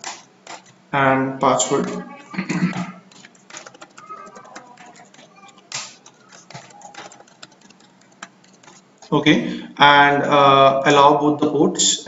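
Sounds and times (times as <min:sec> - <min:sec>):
keyboard key clicks: 0:02.7 - 0:09.1.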